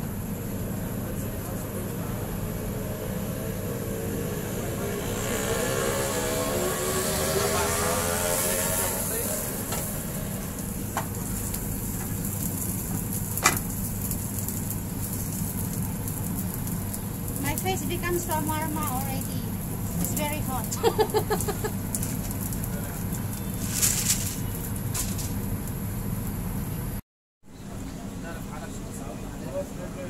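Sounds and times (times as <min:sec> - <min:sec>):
rising whine: 0:00.0 - 0:12.0
kitchen hum: 0:00.0 - 0:26.7
food sizzling on a griddle: 0:05.6 - 0:25.8.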